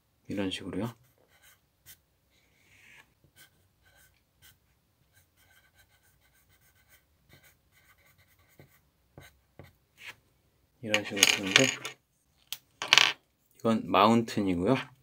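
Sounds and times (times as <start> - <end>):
pencil scratching on paper: 1.0 - 2.0, 2.6 - 10.2.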